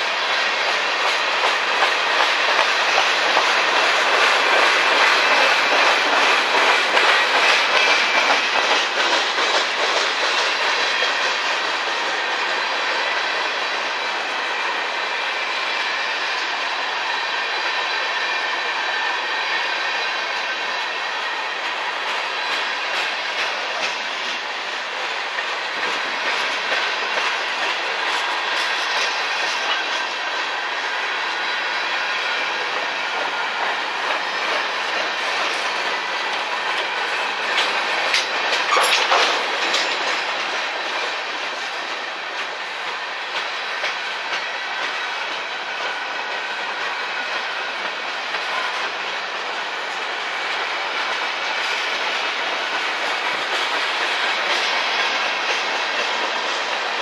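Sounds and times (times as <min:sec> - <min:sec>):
train wheels clicking over rail joints: 0:00.0 - 0:57.0.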